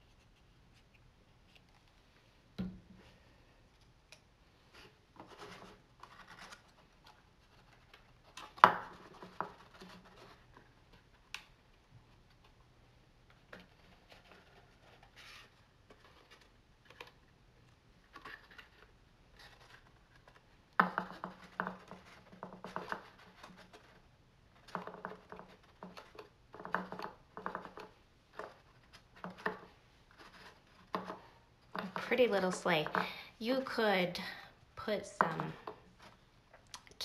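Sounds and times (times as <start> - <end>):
paper scraping and rubbing: 13.8 - 16.4
paper scratches and taps on wood: 19.6 - 24.0, 24.6 - 31.2.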